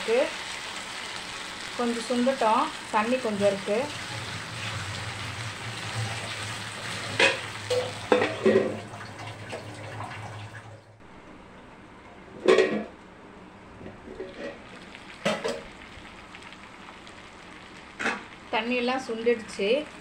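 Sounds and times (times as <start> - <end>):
curry sizzling in a pan: 0.0 - 9.4, 14.2 - 20.0
metal clanking against pan: 7.1 - 8.8.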